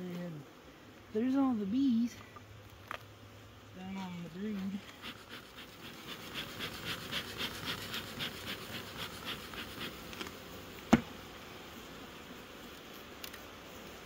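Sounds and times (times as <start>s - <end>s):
bellows hissing puffs: 4.6s - 10.1s.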